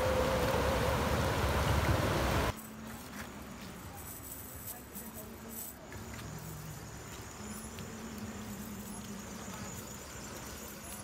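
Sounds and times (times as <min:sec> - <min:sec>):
faint insect chirping: 0:02.4 - 0:11.0.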